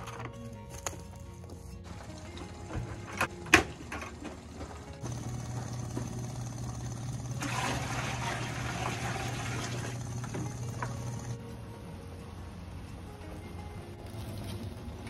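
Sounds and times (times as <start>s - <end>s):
electric pump humming and whining: 1.8s - 11.4s
liquid pouring and splashing: 7.4s - 10.2s.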